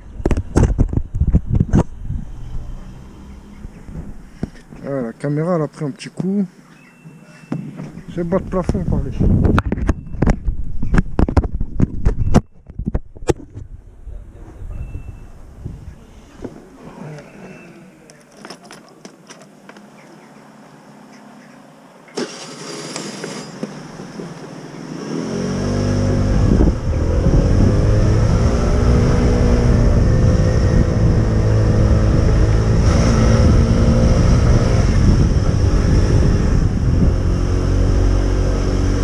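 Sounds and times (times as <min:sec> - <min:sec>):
motor scooter engine: 0:22.1 - 0:39.0.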